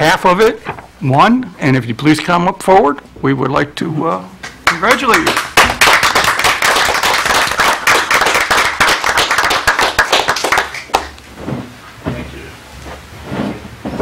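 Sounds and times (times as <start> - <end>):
audience applauding: 4.6 - 11.2.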